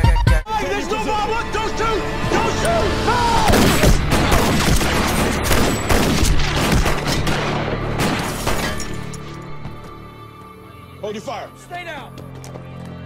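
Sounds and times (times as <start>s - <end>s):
rapid handgun fire: 3.5s - 8.6s.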